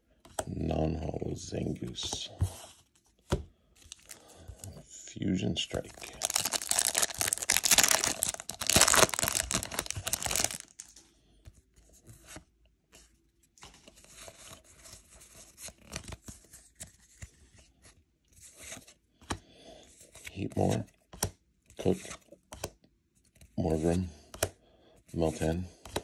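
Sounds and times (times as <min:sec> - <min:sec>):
foil wrapper tearing and crinkling: 0:06.0 - 0:10.9.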